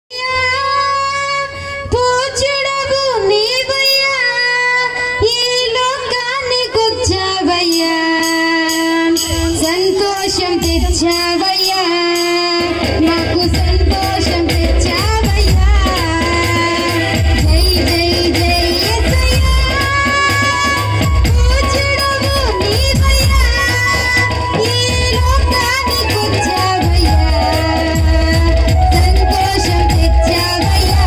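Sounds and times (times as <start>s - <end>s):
woman singing into a microphone: 0.1s - 31.0s
low drum beat: 12.7s - 31.0s.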